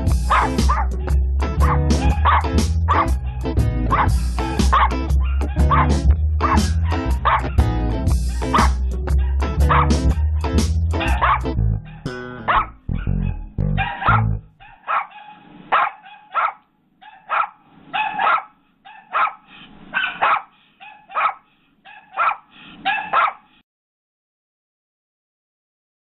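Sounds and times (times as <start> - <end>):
background music: 0.0 - 14.6
small dog yapping: 1.6 - 3.1, 3.9 - 7.6, 11.0 - 23.4.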